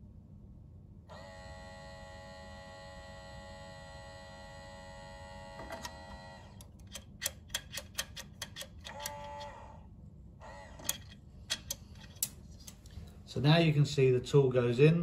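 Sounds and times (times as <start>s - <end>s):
steel tool clicking against steel: 6.7s - 9.2s, 10.8s - 12.8s.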